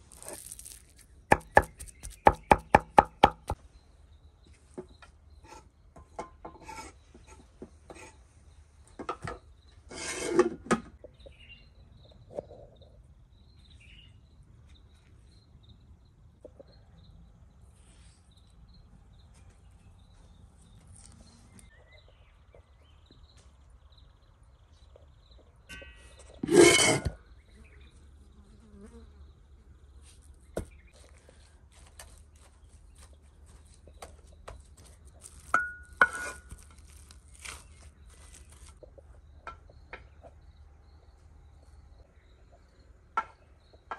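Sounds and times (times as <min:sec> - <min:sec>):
knife and handling sounds: 0:00.0 - 0:02.3, 0:26.4 - 0:27.2, 0:35.2 - 0:38.8
cleaver chopping on wooden board: 0:01.3 - 0:03.6
faint insect buzz: 0:27.7 - 0:29.8.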